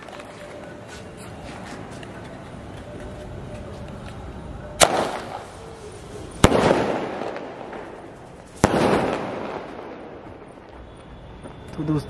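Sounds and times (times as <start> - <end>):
firework bangs: 4.8 - 11.7.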